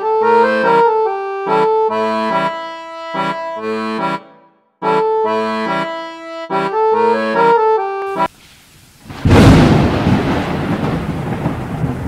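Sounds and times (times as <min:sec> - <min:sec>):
background music with rhythmic chords: 0:00.0 - 0:08.3.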